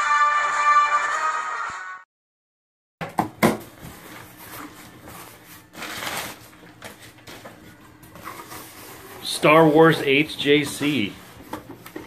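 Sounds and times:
packing paper rustling: 0:03.8 - 0:12.0.

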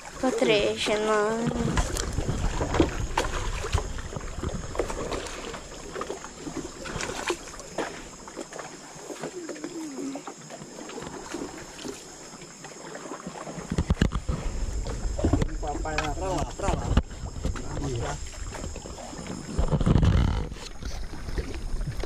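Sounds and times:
paddle pulling through water: 0:00.0 - 0:22.0
water splashes: 0:00.0 - 0:22.0
water washing past hull: 0:00.0 - 0:22.0
paddle knocks: 0:13.3 - 0:22.0.

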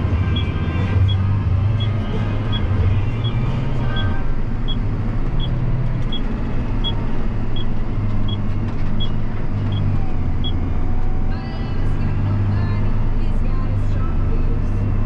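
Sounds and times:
tractor diesel engine running: 0:00.0 - 0:15.0
turn signal relay ticking: 0:01.8 - 0:10.6.

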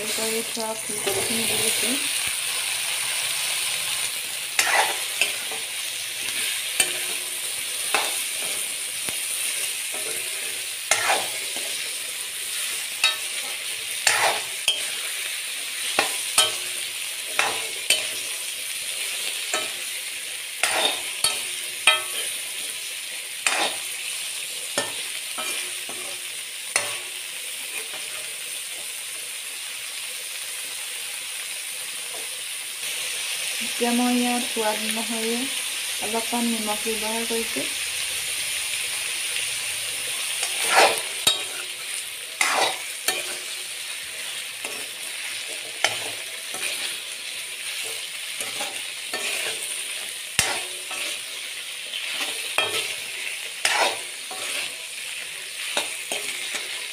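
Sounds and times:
vegetables sizzling in oil: 0:00.0 - 0:56.9
ladle scraping metal pan: 0:04.6 - 0:05.7, 0:09.9 - 0:11.8, 0:40.4 - 0:41.8, 0:42.4 - 0:43.6, 0:47.8 - 0:51.3, 0:52.0 - 0:54.8.

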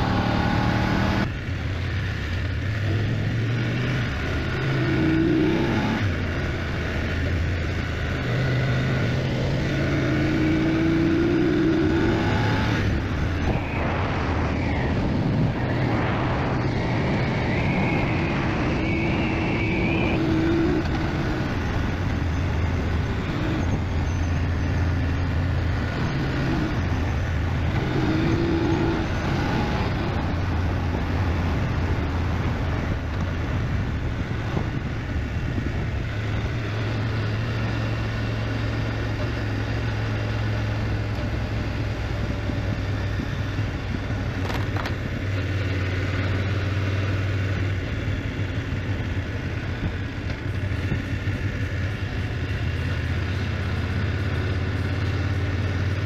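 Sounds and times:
motorcycle engine running: 0:00.0 - 0:56.0
wind and road noise: 0:00.0 - 0:56.0.

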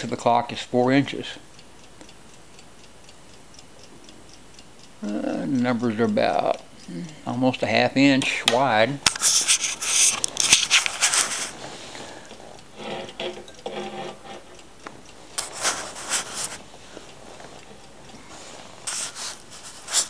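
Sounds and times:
clock ticking: 0:00.0 - 0:20.0
alarm clock handling rubbing: 0:08.0 - 0:20.0.

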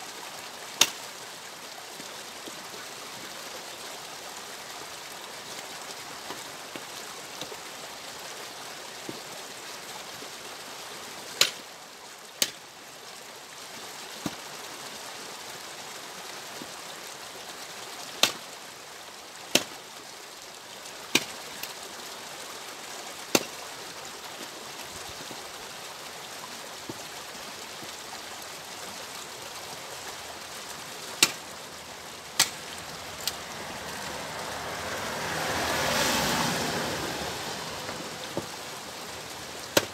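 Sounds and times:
steady rushing hiss: 0:00.0 - 0:39.9
axe splitting firewood: 0:00.8 - 0:01.0, 0:11.4 - 0:11.6, 0:12.4 - 0:12.6, 0:18.2 - 0:18.4, 0:19.5 - 0:19.8, 0:21.1 - 0:21.8, 0:23.3 - 0:23.6, 0:31.2 - 0:31.5, 0:32.3 - 0:33.4, 0:39.7 - 0:39.9.

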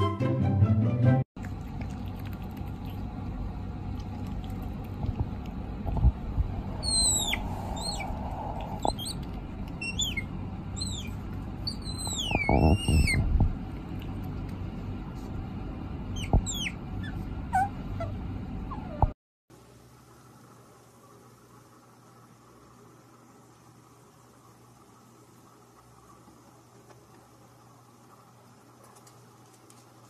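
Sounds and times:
background hiss and rumble: 0:01.4 - 0:30.0
small animal squeaking: 0:06.8 - 0:13.3, 0:16.1 - 0:19.1.

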